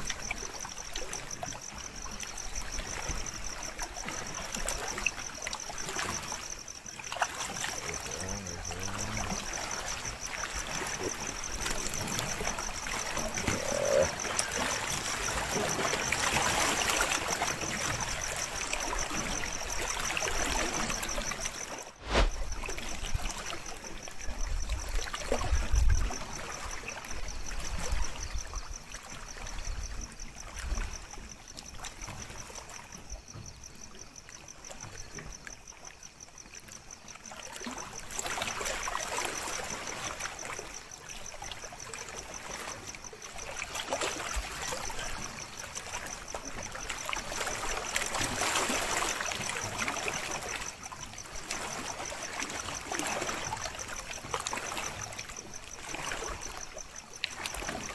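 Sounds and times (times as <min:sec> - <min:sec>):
lapping water: 0:00.0 - 0:24.2
night insects trilling: 0:00.0 - 0:57.9.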